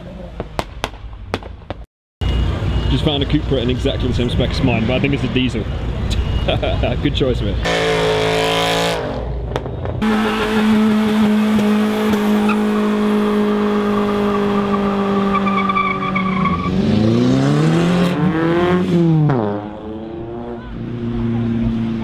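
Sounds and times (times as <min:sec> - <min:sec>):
car engine revving: 0:07.6 - 0:22.0.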